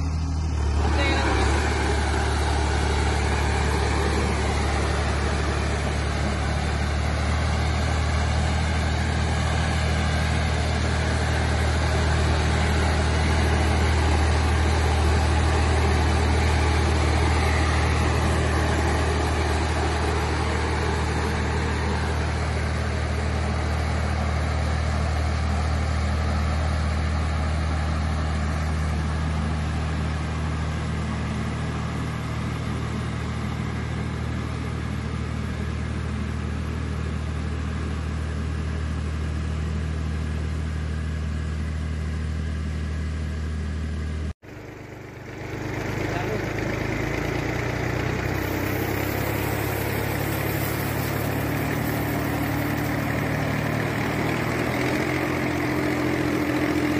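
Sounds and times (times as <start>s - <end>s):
tractor engine running: 0.0s - 56.9s
sprayer fan rushing air: 0.8s - 24.2s, 47.7s - 55.5s.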